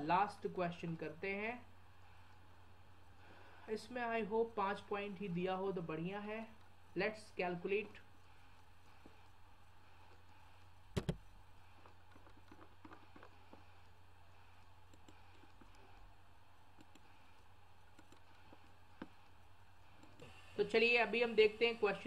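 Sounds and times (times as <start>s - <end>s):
low steady hum: 0.0s - 22.0s
computer mouse clicks: 10.0s - 14.0s, 14.6s - 20.3s.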